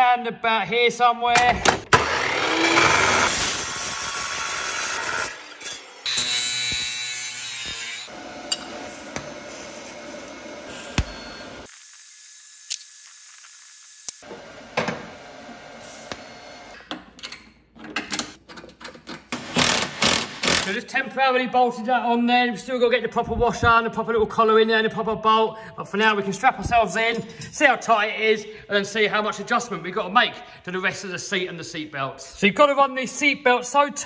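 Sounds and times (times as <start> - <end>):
cut-off saw cutting steel: 1.9 - 16.8
welding hiss: 8.8 - 14.2.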